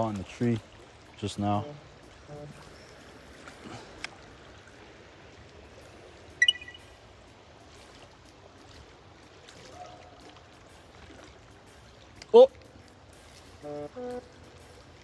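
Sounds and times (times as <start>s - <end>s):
flooded river flowing: 0.0s - 15.0s
sharp high-pitched chirp: 6.4s - 7.0s.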